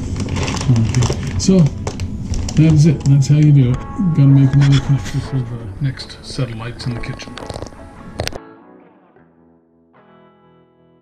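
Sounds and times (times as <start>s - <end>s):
guitar chords ringing: 3.2s - 11.0s.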